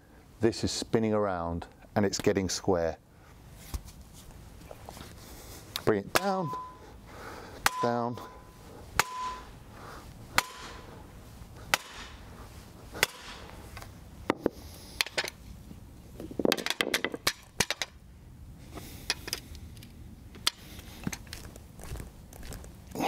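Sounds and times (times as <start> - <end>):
sledgehammer striking timber block: 9.0 - 9.4, 10.4 - 10.8, 11.7 - 12.2, 13.0 - 13.4.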